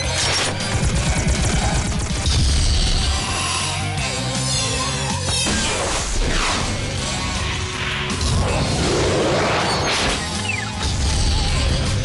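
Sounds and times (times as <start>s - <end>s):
rock guitar action music: 0.0s - 12.0s.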